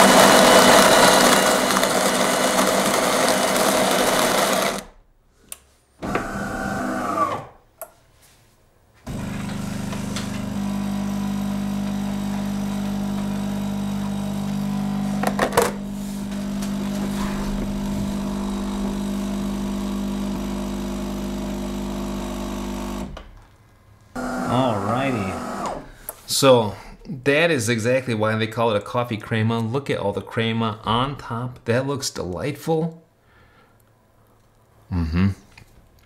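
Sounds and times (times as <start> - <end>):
coffee grinder: 0.0 - 4.9, 9.1 - 23.1, 24.2 - 25.9
pump buzzing hum: 9.1 - 23.2, 24.2 - 25.9.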